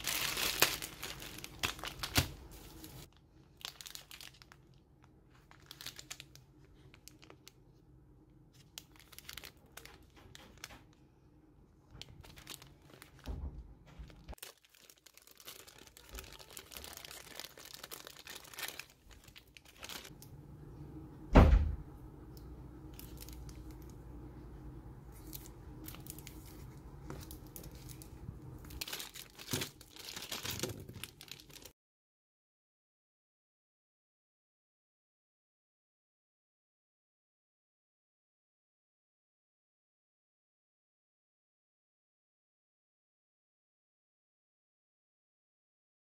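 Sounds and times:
plastic packaging crinkling: 0.0 - 7.7, 8.5 - 11.0, 12.0 - 20.4, 22.8 - 24.2, 25.0 - 31.7.

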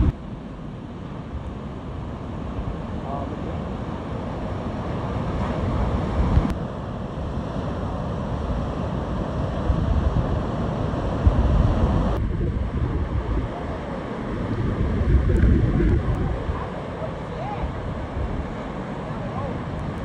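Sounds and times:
wind buffeting microphone: 1.1 - 20.0.

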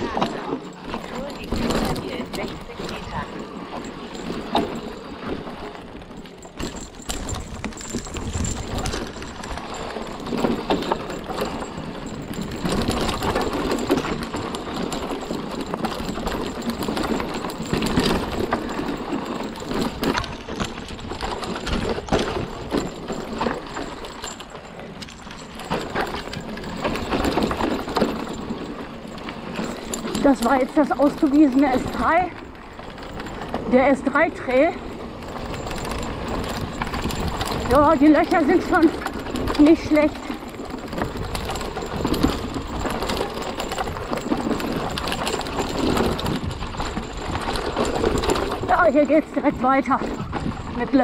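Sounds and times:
bike knocking and clattering: 0.0 - 51.0
tyres rolling over dirt: 0.0 - 51.0.

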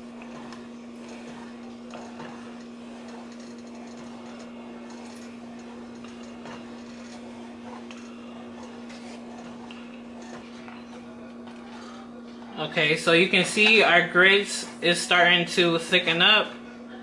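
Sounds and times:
wooden spoon scraping saucepan: 0.0 - 12.0
steady low hum: 0.0 - 17.0.

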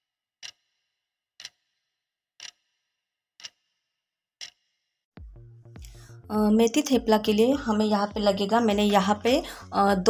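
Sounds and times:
clock ticking: 0.4 - 0.6, 1.4 - 1.7, 2.4 - 2.6, 3.4 - 3.6, 4.4 - 4.6.

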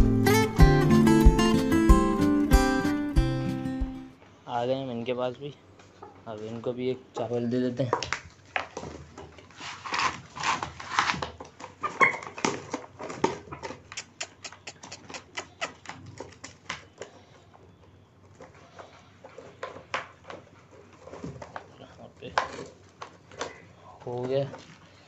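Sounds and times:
chickens pecking plastic tray: 5.8 - 25.0.

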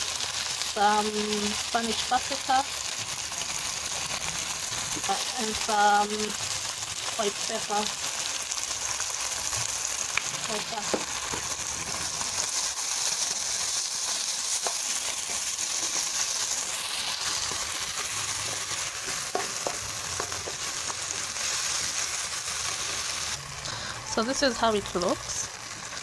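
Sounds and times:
vegetables sizzling in hot oil: 0.0 - 26.0
spatula tapping on pan: 19.0 - 21.2.

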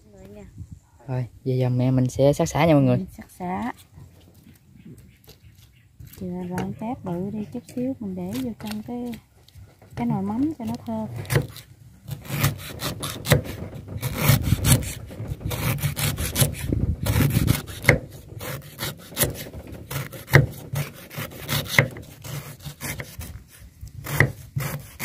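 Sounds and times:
knife chopping on wooden block: 11.2 - 23.4, 24.0 - 25.0.

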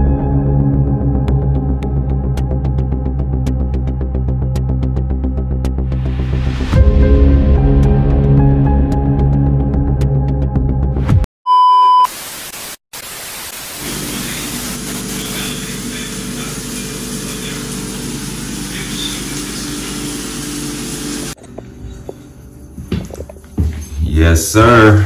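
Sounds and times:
short loud beep: 11.5 - 12.1
steady hiss: 12.1 - 20.2.

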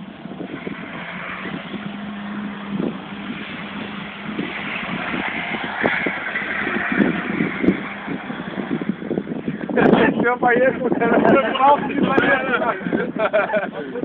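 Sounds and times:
car engine running: 0.0 - 10.3
road and wind noise: 0.0 - 14.0.

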